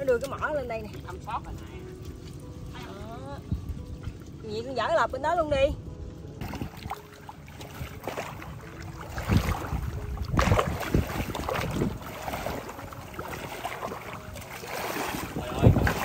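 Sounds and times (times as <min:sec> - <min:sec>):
legs wading through water: 0:06.4 - 0:16.0.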